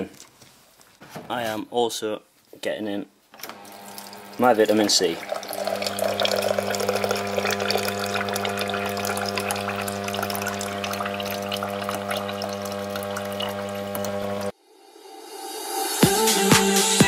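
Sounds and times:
dispenser electric hum: 0:03.4 - 0:14.5
water pouring into a glass: 0:03.6 - 0:14.5.

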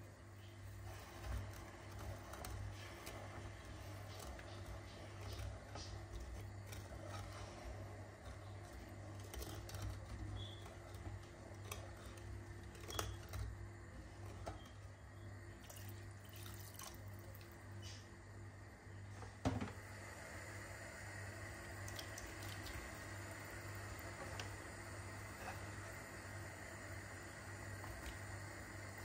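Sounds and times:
steady low hum: 0:00.0 - 0:29.0
syrup swishing in pot: 0:00.4 - 0:13.6.

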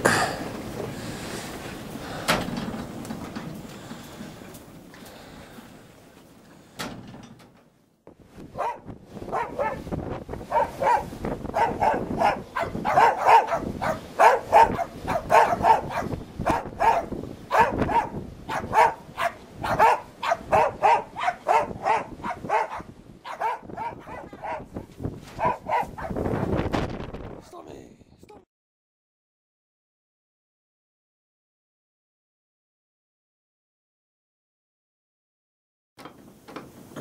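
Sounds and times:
dog barking: 0:08.6 - 0:09.9, 0:10.5 - 0:24.8, 0:25.4 - 0:26.2.

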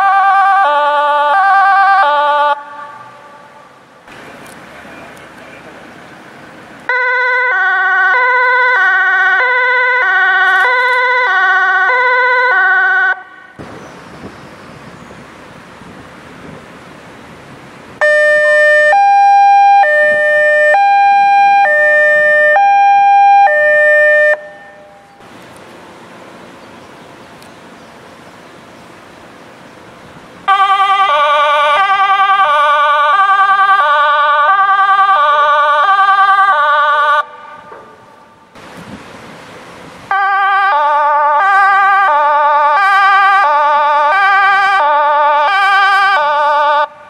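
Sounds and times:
two-tone siren: 0:00.0 - 0:03.8, 0:06.9 - 0:13.6, 0:18.0 - 0:25.3, 0:30.4 - 0:38.5, 0:40.1 - 0:47.0.

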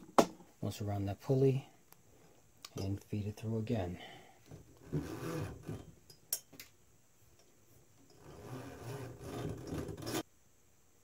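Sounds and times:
rubber belt rubbing: 0:04.5 - 0:06.0, 0:08.1 - 0:10.2.

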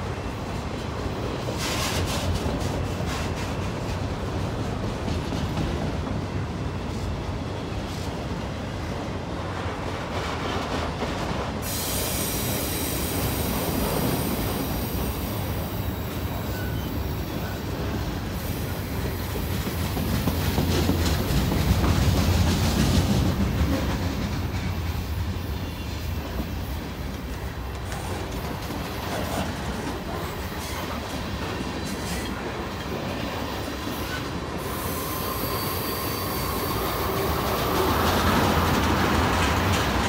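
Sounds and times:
freight train rumbling past: 0:00.0 - 0:40.0
high-pitched wheel squeal: 0:15.8 - 0:17.0, 0:34.0 - 0:37.6.

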